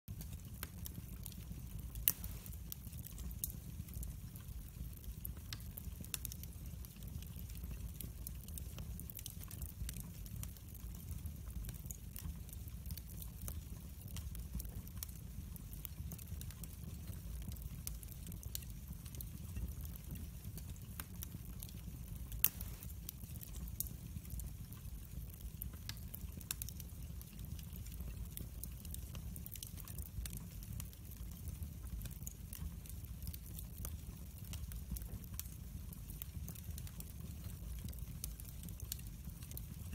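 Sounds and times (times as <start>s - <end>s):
fire rumbling: 0.1s - 39.9s
wood crackling and popping: 0.1s - 39.9s.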